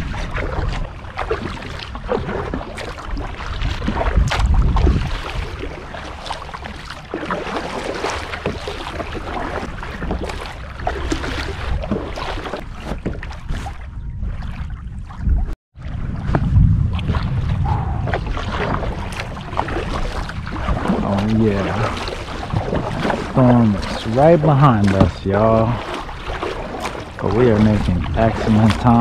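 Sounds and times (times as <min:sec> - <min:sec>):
wind buffeting microphone: 0:00.0 - 0:06.9, 0:09.5 - 0:29.0
water splashing around kayak: 0:00.0 - 0:29.0.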